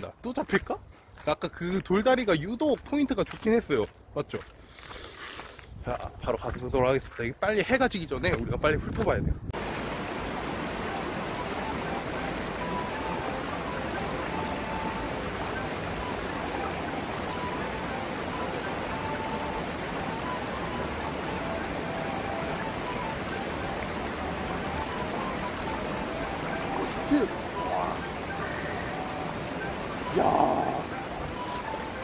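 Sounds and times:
river water rushing over rocks: 9.6 - 32.0.

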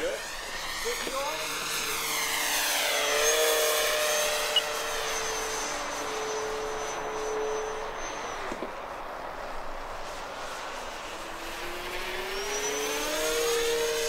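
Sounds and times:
model plane motor whine: 0.0 - 14.0.

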